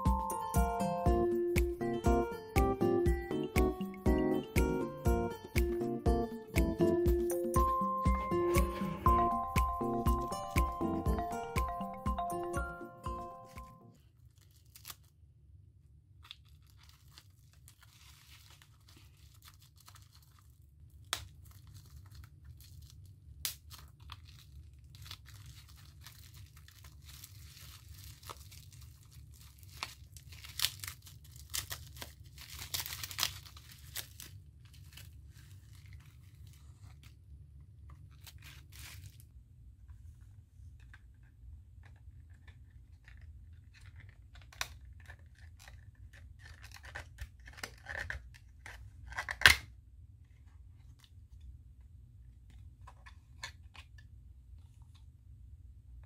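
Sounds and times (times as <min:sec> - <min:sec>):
bubble wrap crinkling and tearing: 0:14.0 - 0:15.3, 0:16.2 - 0:39.4, 0:42.2 - 0:49.6.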